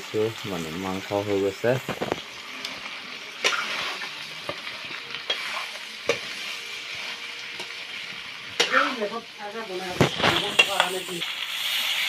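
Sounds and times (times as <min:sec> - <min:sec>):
meat and potatoes sizzling in wok: 0:00.0 - 0:12.0
metal ladle scraping pan: 0:03.4 - 0:04.2, 0:05.2 - 0:09.2, 0:09.8 - 0:11.2.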